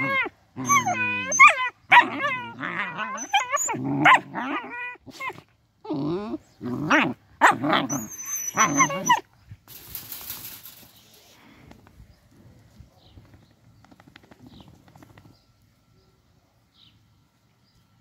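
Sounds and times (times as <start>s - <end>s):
puppies yelping and whining: 0.0s - 6.4s, 7.8s - 9.2s
faint rustle: 9.1s - 15.6s.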